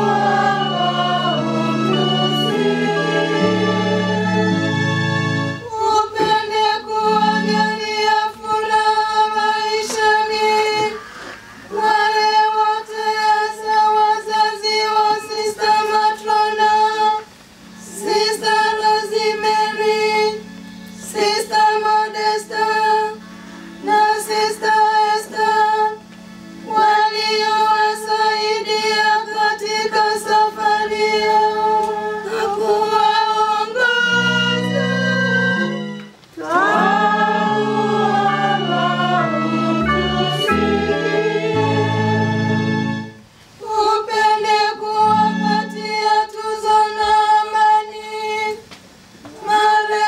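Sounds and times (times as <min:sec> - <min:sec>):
low chord: 0:00.0 - 0:05.7, 0:34.0 - 0:43.3
women chanting into microphone: 0:36.4 - 0:39.9.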